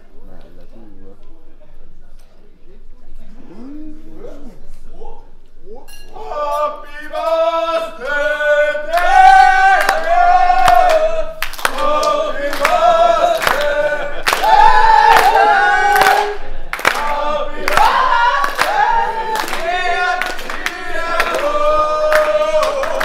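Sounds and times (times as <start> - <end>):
group singing birthday song: 6.1 - 23.0
people clapping: 7.2 - 23.0.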